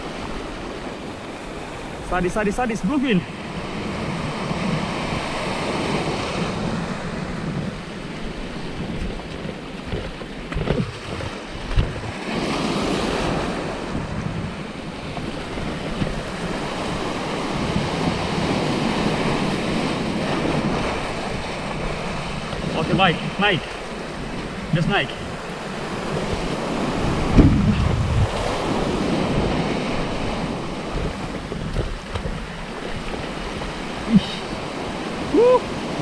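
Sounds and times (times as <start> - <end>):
wind buffeting microphone: 0.0 - 36.0
surf breaking over rocks: 1.7 - 36.0
brief thump: 27.3 - 27.9.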